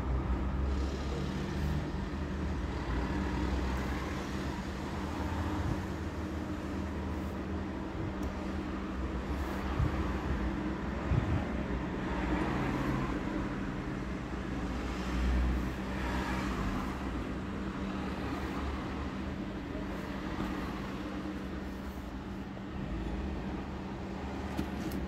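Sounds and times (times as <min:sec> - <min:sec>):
street traffic noise: 0:00.0 - 0:25.0.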